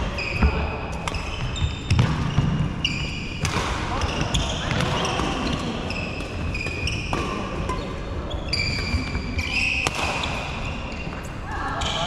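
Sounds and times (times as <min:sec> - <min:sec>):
rackets hitting a shuttlecock: 0:00.4 - 0:02.7, 0:03.4 - 0:07.8, 0:08.8 - 0:10.7
shoes squeaking on wooden floor: 0:04.0 - 0:11.3.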